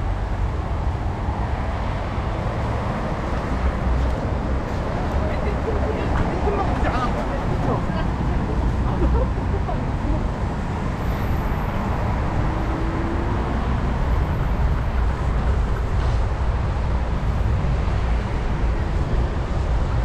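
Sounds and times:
city road traffic: 0.0s - 20.0s
wind rumble on microphone: 0.0s - 20.0s.

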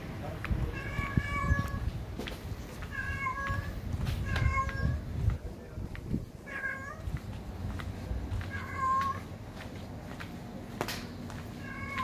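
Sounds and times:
cat meowing: 0.7s - 1.8s, 2.8s - 5.1s, 6.4s - 7.2s, 8.5s - 9.2s, 11.6s - 12.0s.

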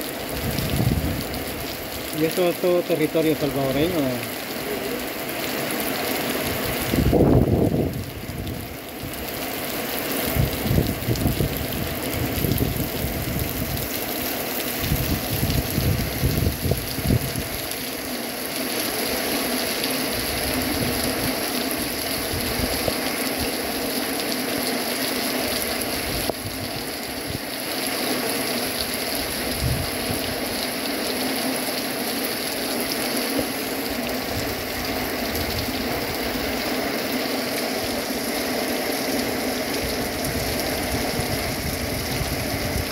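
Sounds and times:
heavy rain falling: 0.0s - 42.9s
wind buffeting microphone: 0.3s - 1.7s, 6.8s - 9.2s, 10.3s - 14.0s, 14.8s - 17.6s, 29.3s - 30.3s, 39.8s - 42.9s.

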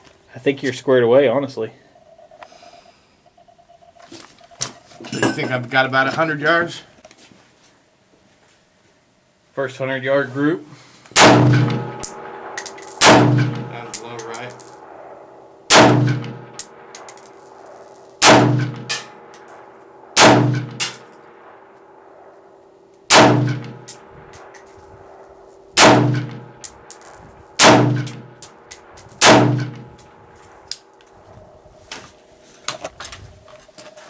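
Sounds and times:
rifle shots: 11.1s - 22.4s, 23.0s - 30.6s.

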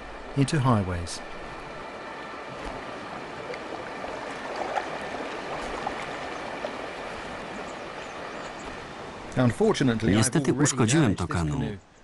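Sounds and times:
river water rushing: 0.0s - 11.1s.

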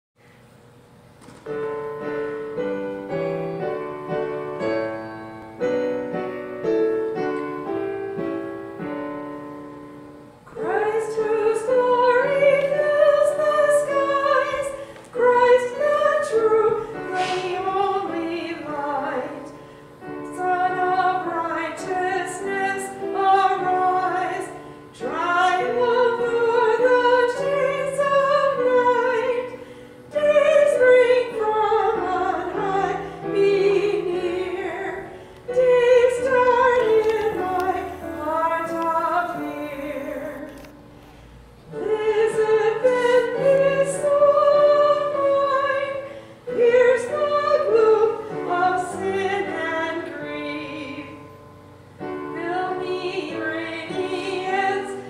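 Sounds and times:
piano chords: 1.4s - 55.0s
soprano singing with vibrato: 10.5s - 40.7s, 41.7s - 51.4s, 52.0s - 55.0s.

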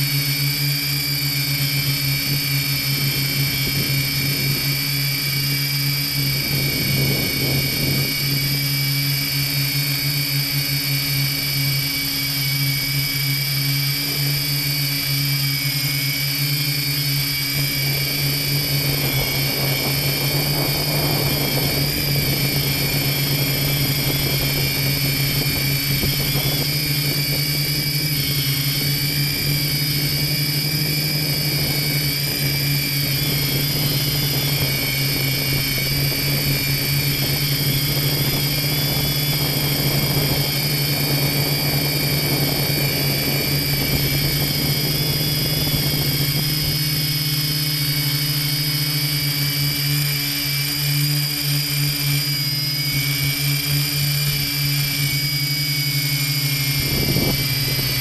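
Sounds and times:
drone propellers whining: 0.0s - 58.0s.

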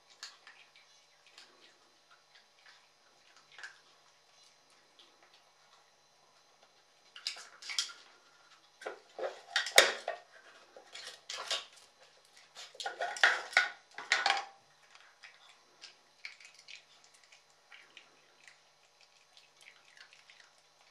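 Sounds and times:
wooden lids knocking and clattering: 12.8s - 14.6s.

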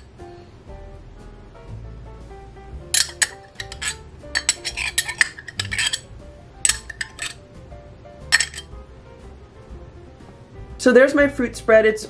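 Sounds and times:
soft background music: 0.0s - 12.0s
knife clinking on jar: 3.0s - 6.1s, 6.7s - 7.4s, 8.3s - 8.7s
knife scraping glass jar: 3.0s - 7.4s, 8.3s - 8.7s.

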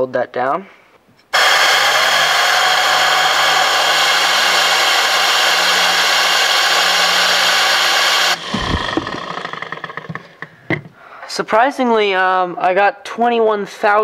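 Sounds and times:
compressed air rushing hiss: 1.4s - 10.4s
high whine: 1.4s - 10.5s.

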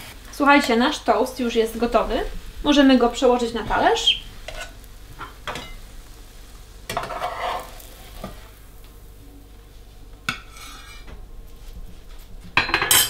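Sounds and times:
faint sizzle from pan: 0.0s - 13.0s
metal utensils scraping a pan: 3.3s - 5.8s, 6.9s - 8.5s, 10.3s - 11.1s, 12.6s - 13.0s.

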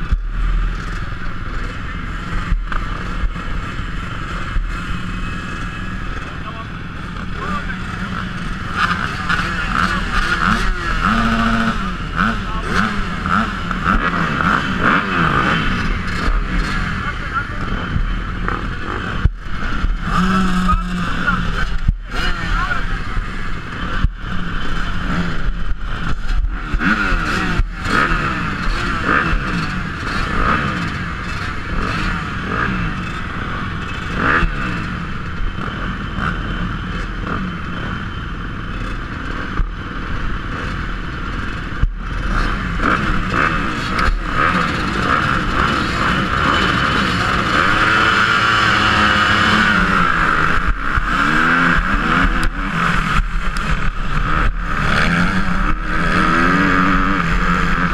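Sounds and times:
motocross engines revving: 0.0s - 57.9s
motorbike accelerating away: 0.0s - 57.9s.

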